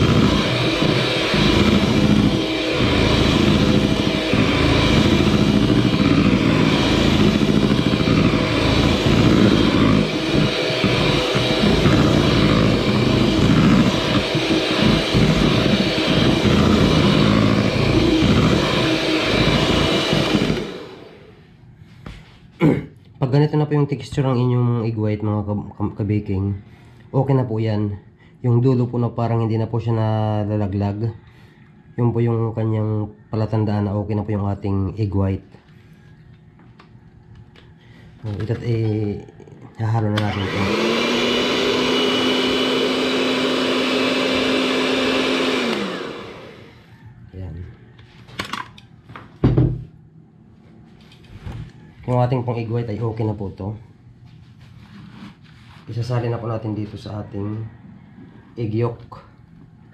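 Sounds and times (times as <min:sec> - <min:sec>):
electric hand mixer motor: 0:00.0 - 0:21.5, 0:39.8 - 0:46.9.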